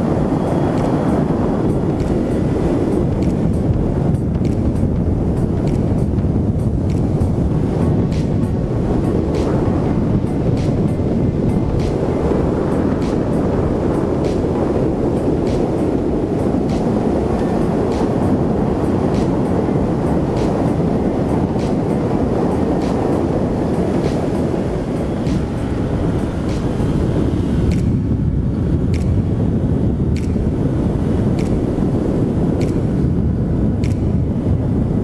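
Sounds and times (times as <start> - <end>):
road noise: 0.0 - 35.0
wind rush over microphone: 0.0 - 35.0
faint ticks: 33.8 - 34.1.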